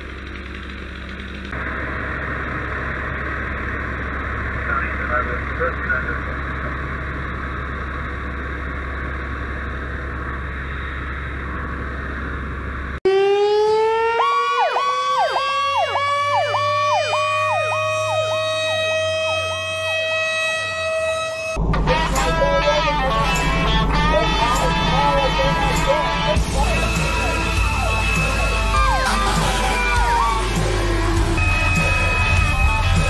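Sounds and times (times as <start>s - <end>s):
fire engine engines droning: 0.0s - 33.0s
siren climbing in pitch: 13.0s - 33.0s
siren whooping up and down: 13.0s - 33.0s.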